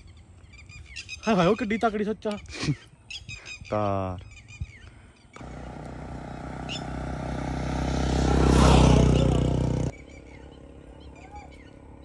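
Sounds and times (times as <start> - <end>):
motorcycle passing: 5.4 - 12.0.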